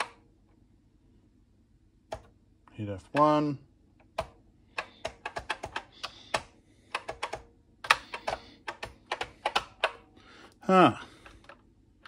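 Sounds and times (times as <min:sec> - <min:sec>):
keyboard keys clicking: 0:02.1 - 0:02.3, 0:04.0 - 0:10.0.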